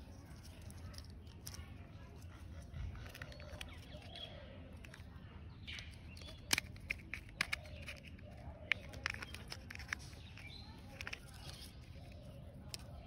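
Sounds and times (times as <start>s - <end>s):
faint birds chirping: 0.0s - 13.0s
plastic toy parts handled: 0.1s - 13.0s
sharp plastic clicks: 3.0s - 13.0s.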